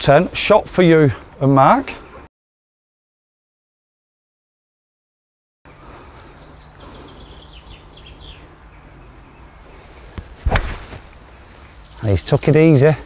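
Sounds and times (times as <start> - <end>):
birds chirping: 0.1 - 2.3, 5.7 - 13.0
golf club striking ball: 10.2 - 11.2.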